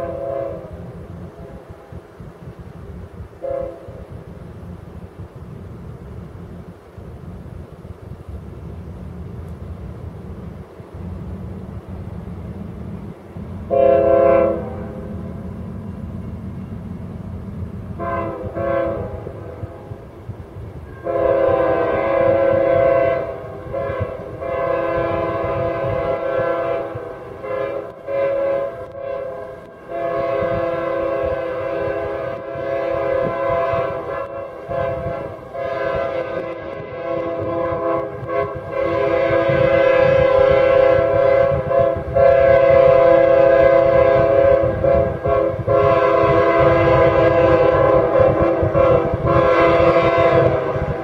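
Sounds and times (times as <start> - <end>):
locomotive air horn: 0.0 - 1.5, 3.4 - 4.2, 13.7 - 15.5, 17.9 - 20.0, 20.8 - 51.0
low rumble of diesel train: 0.0 - 51.0.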